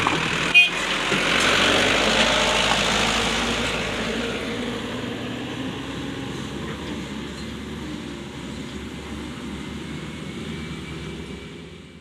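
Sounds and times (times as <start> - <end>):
truck engine driving away: 0.0 - 12.0.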